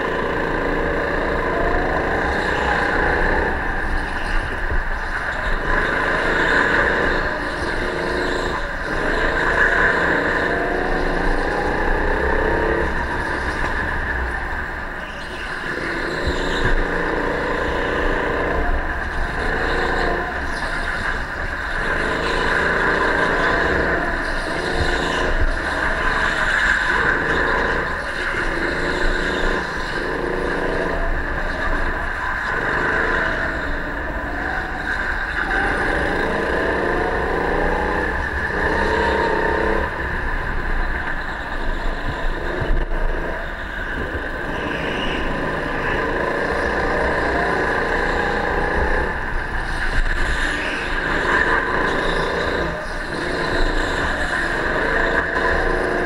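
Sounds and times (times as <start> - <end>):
go-kart engine revving: 0.0 - 56.0
high-pitched hum: 0.0 - 56.0.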